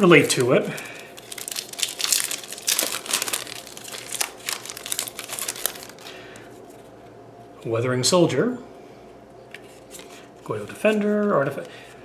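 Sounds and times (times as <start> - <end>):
foil wrapper crinkling: 0.0 - 6.5.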